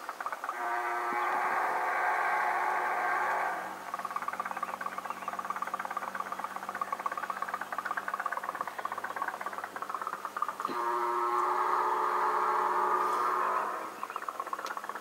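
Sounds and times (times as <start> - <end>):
steady steam hiss: 9.8 - 14.4.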